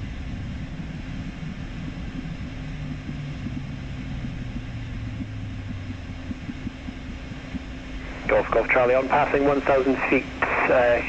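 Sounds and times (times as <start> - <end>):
faint hum: 0.0 - 11.0
jet engines low rumble: 0.0 - 11.0.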